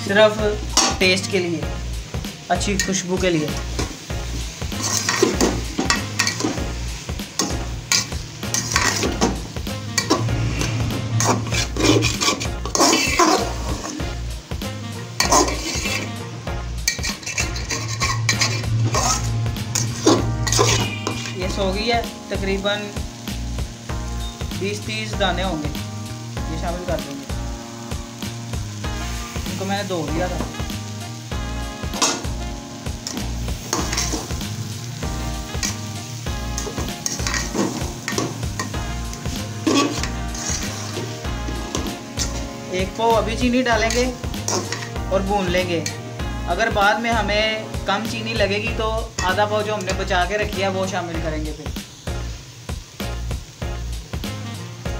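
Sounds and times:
carrots frying: 0.0s - 54.9s
metal spoon scraping pot: 7.4s - 9.3s, 10.0s - 14.0s, 15.2s - 16.1s, 16.8s - 21.4s, 36.6s - 38.7s, 39.6s - 40.9s, 43.9s - 44.9s.

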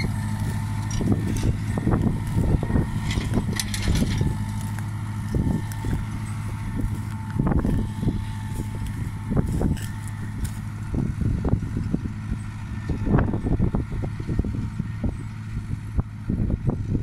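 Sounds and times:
low thumps and rustling: 0.0s - 12.1s
distant tractor diesel engine: 0.0s - 17.0s.

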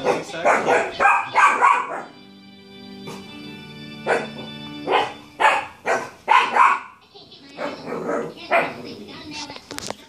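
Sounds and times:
puppy yapping: 0.0s - 2.2s, 4.1s - 7.0s
background music chord: 0.0s - 6.9s.

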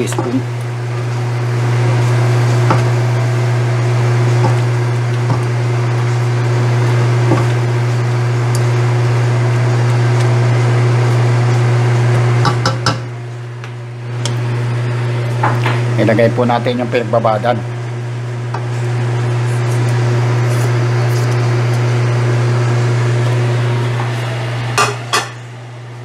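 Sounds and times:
chicken and onions sizzling: 0.0s - 16.0s.

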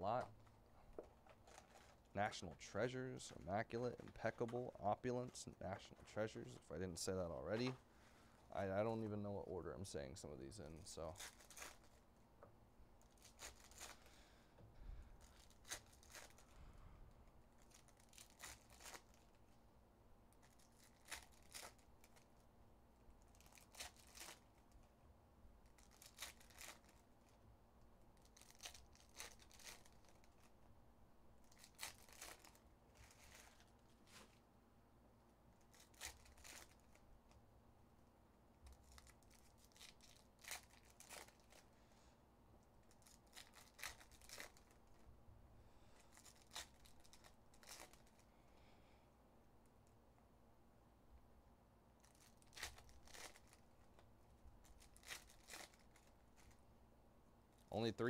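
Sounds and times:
foil wrappers tearing and crinkling: 11.1s - 12.0s, 15.3s - 16.5s, 17.6s - 19.4s, 23.3s - 24.7s, 25.7s - 27.0s, 28.2s - 30.5s, 31.5s - 33.7s, 35.7s - 37.0s, 38.8s - 41.6s, 42.8s - 44.8s, 46.1s - 48.2s, 52.0s - 53.6s, 54.6s - 56.6s.

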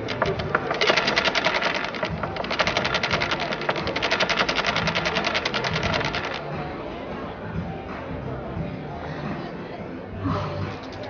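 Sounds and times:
dice rattling in a cup: 0.0s - 6.4s.

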